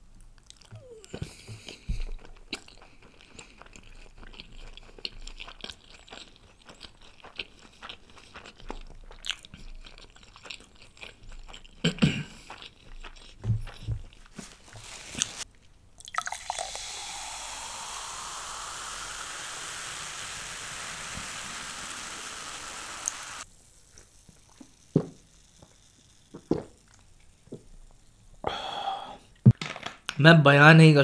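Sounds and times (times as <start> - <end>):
drinking sounds: 16.0 - 23.4
fizzing cola pouring into glass: 16.0 - 23.4.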